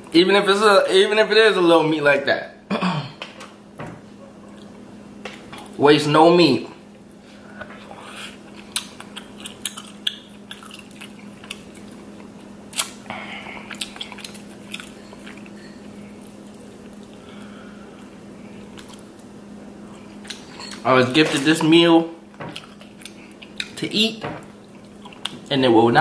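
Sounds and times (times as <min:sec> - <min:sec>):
chewing: 0:07.6 - 0:20.8, 0:22.5 - 0:23.8, 0:24.5 - 0:25.5.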